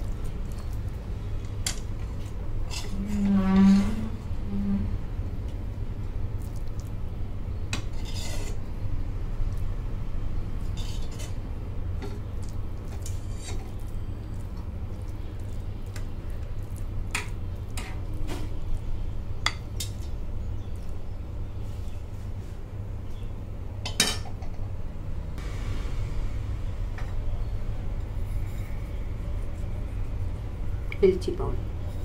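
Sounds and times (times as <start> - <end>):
low hum: 25.0 - 31.0.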